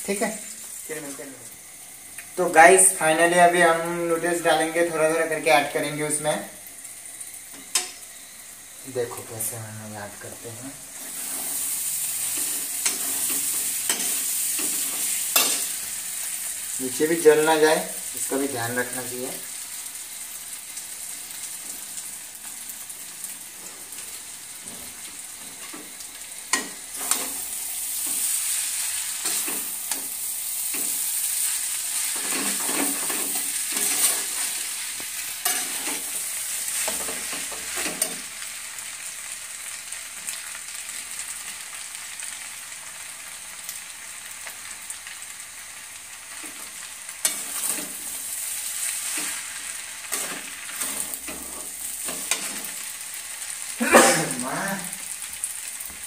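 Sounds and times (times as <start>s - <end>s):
food sizzling in a pan: 0.0s - 56.0s
tongs clattering in a pan: 12.2s - 15.8s, 26.5s - 31.0s, 32.0s - 34.6s, 35.4s - 38.3s, 47.2s - 48.2s, 48.9s - 52.9s.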